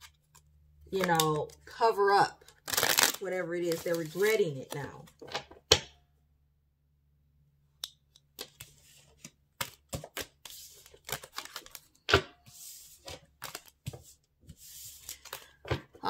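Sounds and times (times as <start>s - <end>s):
cards clicking and swishing on wood: 8.2s - 11.8s, 12.4s - 15.9s.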